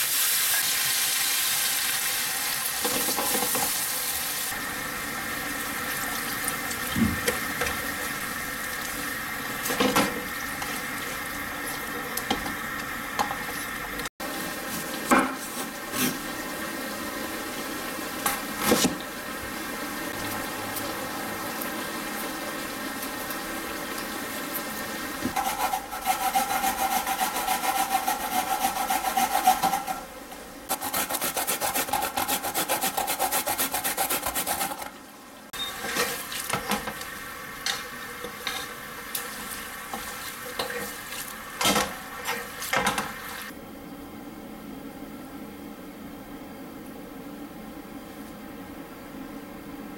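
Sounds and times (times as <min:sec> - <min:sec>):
radish rasping on grater: 0:30.7 - 0:34.8.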